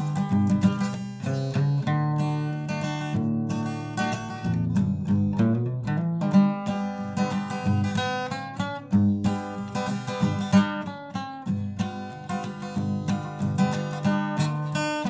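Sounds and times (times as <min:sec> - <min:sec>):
acoustic guitar music: 0:00.0 - 0:15.0.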